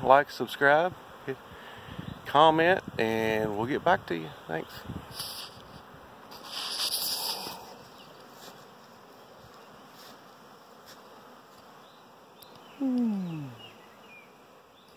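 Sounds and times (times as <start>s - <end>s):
bees buzzing: 0.6s - 2.7s, 3.6s - 14.9s.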